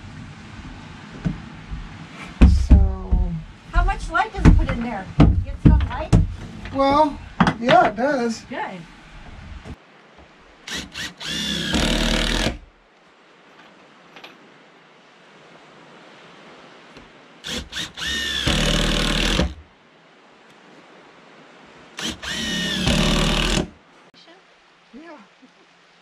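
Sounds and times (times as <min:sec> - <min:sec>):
cordless drill whining: 0:10.7 - 0:12.6, 0:17.4 - 0:19.6, 0:22.0 - 0:23.7
drill trigger taps: 0:17.5 - 0:19.6, 0:22.0 - 0:23.7.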